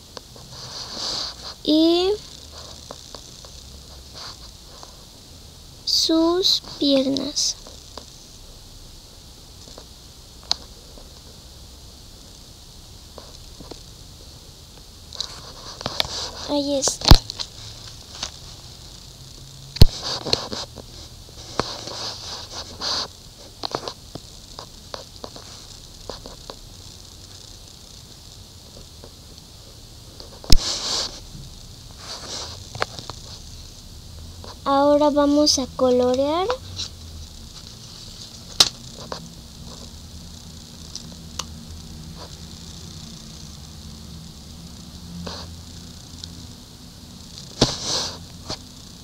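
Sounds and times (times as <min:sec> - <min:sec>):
steady low hum: 0:00.0 - 0:49.0
colouring scratching on paper: 0:00.4 - 0:05.0, 0:15.2 - 0:18.2, 0:19.8 - 0:23.1, 0:30.4 - 0:31.2.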